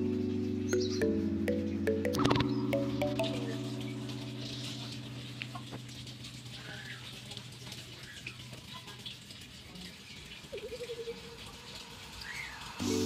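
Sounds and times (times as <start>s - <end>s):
low sustained music note: 0.0s - 7.2s.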